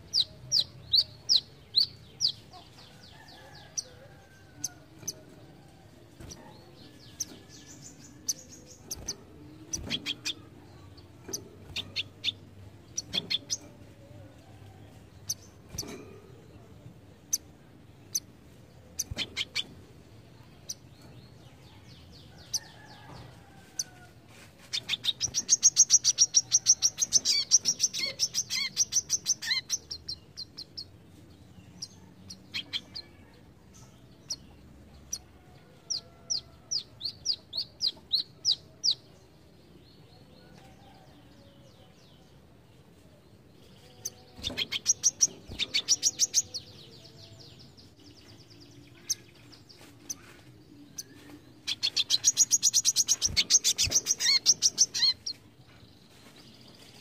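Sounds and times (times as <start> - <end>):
bird singing chattering trills: 6.9 - 13.8, 24.7 - 30.9, 43.7 - 55.4.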